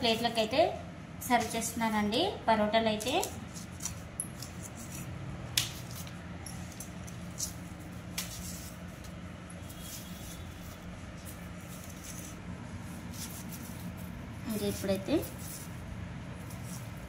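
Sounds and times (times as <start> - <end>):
steady low hum: 0.0 - 17.0
soft rustles: 5.7 - 17.0.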